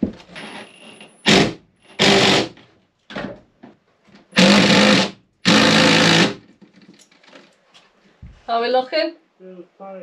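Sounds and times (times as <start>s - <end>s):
cordless drill bursts: 0.4s - 2.6s, 4.4s - 6.4s.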